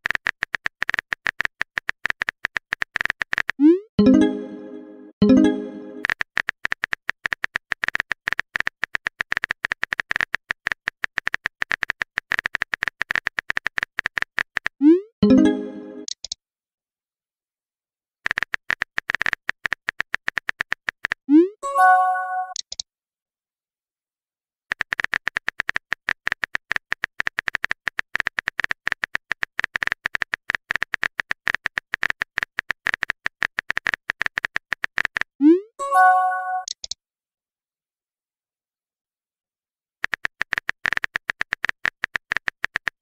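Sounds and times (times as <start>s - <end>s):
keyboard typing clicks: 0.0s - 16.4s, 22.3s - 22.8s, 36.2s - 37.0s, 40.0s - 43.0s.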